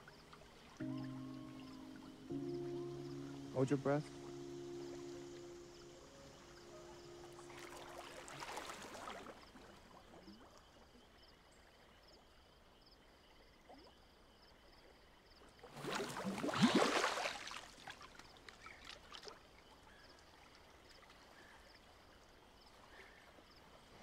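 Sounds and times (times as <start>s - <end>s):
soft water swish: 3.6s - 10.9s, 15.6s - 22.2s
loud water splash: 7.5s - 9.4s, 15.8s - 17.9s.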